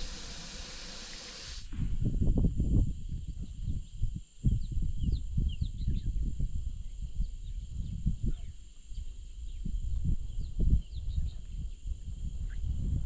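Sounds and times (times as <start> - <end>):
steady high hiss: 0.0 - 1.8
wind buffeting microphone: 0.0 - 13.0.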